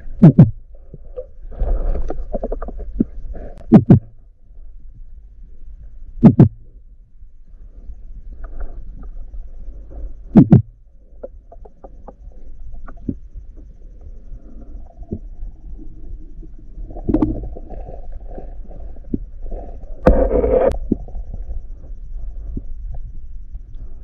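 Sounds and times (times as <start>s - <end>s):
underwater low rumble: 0.0s - 24.0s
loud double thump: 3.7s - 4.1s.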